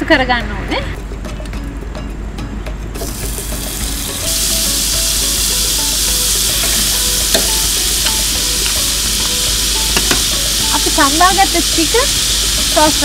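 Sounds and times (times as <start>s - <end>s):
butter sizzling in a wok: 3.0s - 13.0s.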